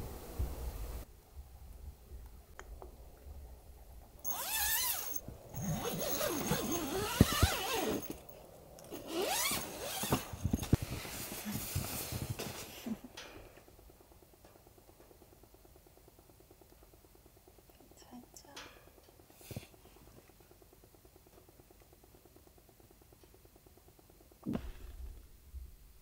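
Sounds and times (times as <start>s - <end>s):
sleeping bag and bedding rustling: 4.2s - 13.1s.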